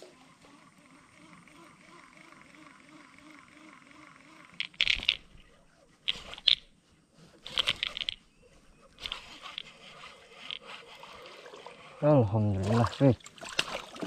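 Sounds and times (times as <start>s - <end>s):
fishing reel clicking: 2.5s - 6.8s, 7.4s - 8.2s, 9.0s - 11.0s.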